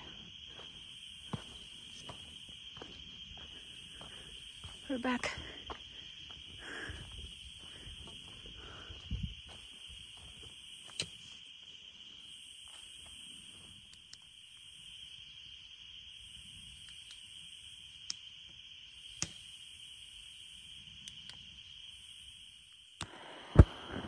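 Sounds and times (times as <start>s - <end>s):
insect buzzing: 0.0s - 24.0s
insects chirping: 0.0s - 24.0s
sharp clicks: 10.9s - 11.2s, 19.1s - 19.4s.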